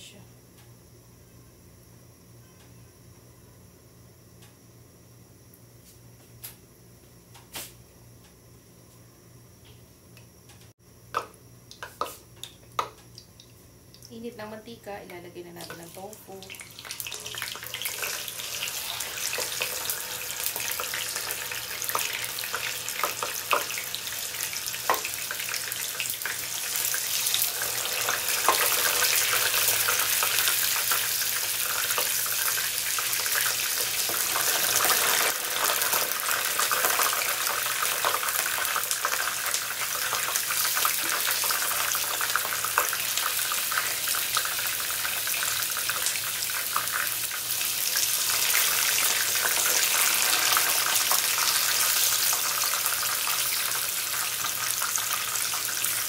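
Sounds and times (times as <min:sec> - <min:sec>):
tofu sizzling in oil: 0:15.6 - 0:56.0.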